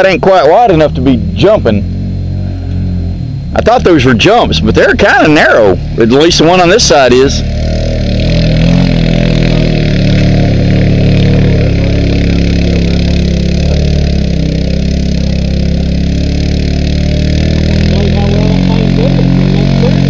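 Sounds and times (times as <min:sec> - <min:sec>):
faint engine rising and falling: 0:00.0 - 0:20.0
utility vehicle engine running: 0:00.0 - 0:20.0.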